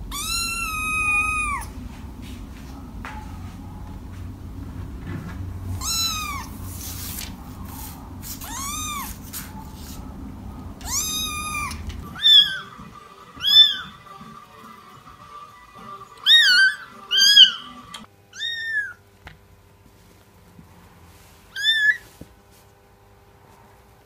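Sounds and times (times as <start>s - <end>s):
kittens meowing: 0.0s - 1.7s, 5.7s - 6.6s, 8.2s - 9.4s, 10.8s - 12.8s, 13.4s - 14.0s, 16.2s - 17.8s, 18.4s - 19.0s.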